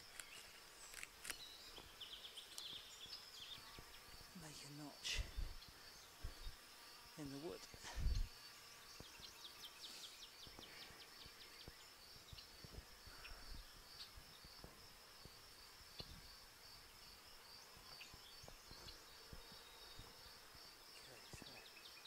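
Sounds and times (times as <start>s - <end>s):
insects trilling: 0.0s - 22.0s.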